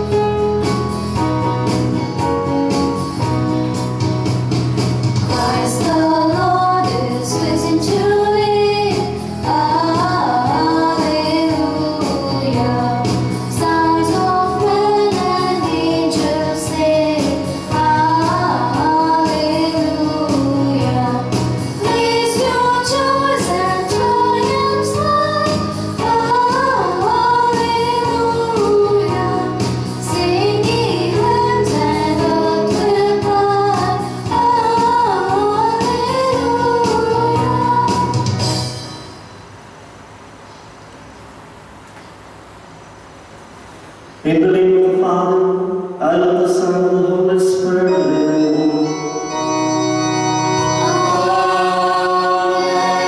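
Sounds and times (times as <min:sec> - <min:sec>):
instrumental accompaniment: 0:00.0 - 0:39.4, 0:47.7 - 0:53.0
woman singing a hymn: 0:05.3 - 0:38.5, 0:50.6 - 0:53.0.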